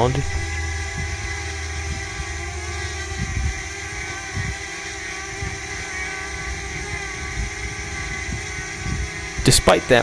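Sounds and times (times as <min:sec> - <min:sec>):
drone propellers whining: 0:00.0 - 0:10.0.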